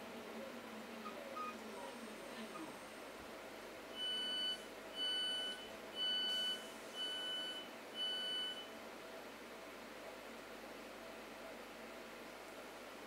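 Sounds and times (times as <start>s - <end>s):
train door warning beeps: 4.0s - 8.7s.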